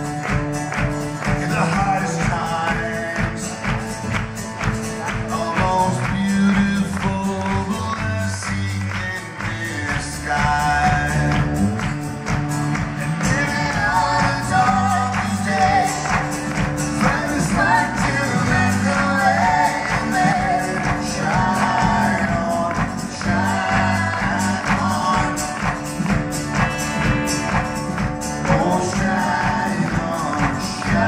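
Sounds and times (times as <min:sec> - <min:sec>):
drums: 0:00.0 - 0:31.0
strummed acoustic guitar: 0:00.0 - 0:31.0
person singing: 0:04.9 - 0:11.7, 0:13.0 - 0:26.2, 0:28.4 - 0:31.0.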